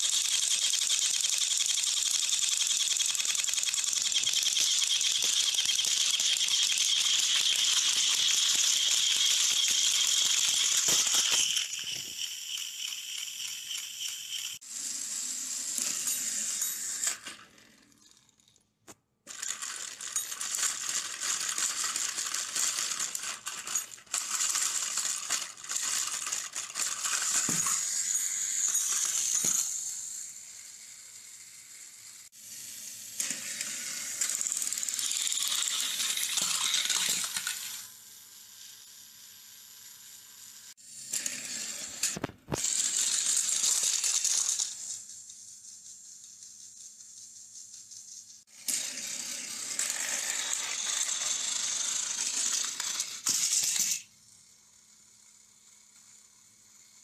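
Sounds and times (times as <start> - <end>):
plastic wheels clattering: 0.0 - 14.6, 19.3 - 29.8, 33.2 - 37.9, 41.2 - 45.4
toy train motor whirring: 0.0 - 18.7, 19.3 - 57.0.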